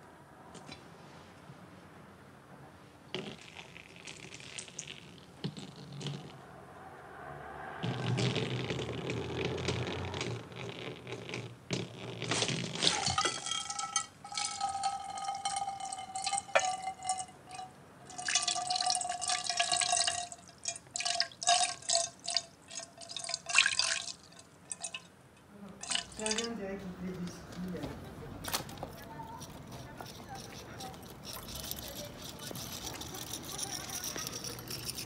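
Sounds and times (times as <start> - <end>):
oil pouring into a saucepan: 12.9 - 25.1.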